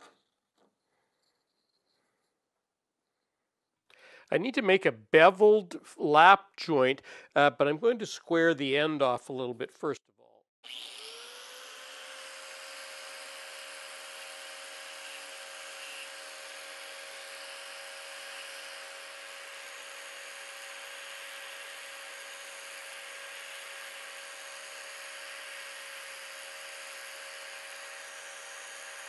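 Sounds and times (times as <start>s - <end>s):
angle grinder grinding steel: 10.6s - 29.0s.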